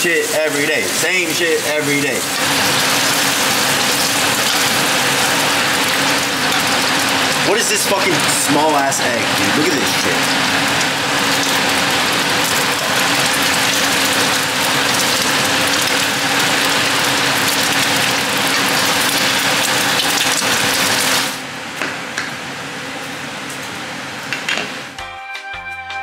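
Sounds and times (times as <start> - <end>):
bacon and eggs sizzling in a pan: 0.1 - 7.5, 10.3 - 21.4.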